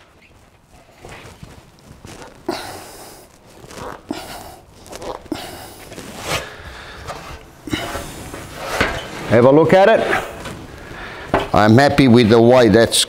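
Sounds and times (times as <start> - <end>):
sheet metal flexing and popping: 6.4 - 12.4.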